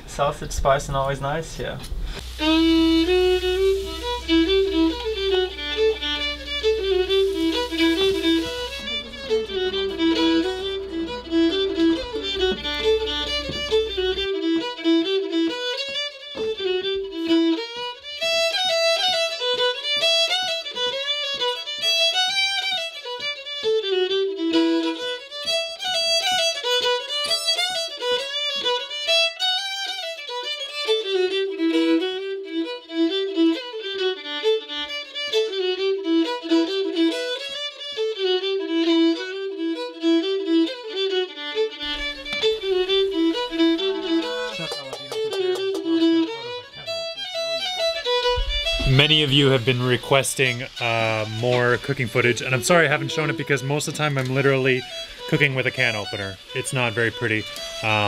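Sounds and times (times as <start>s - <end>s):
low steady hum: 0.0s - 15.6s, 41.8s - 46.3s
fiddle melody: 1.0s - 58.0s.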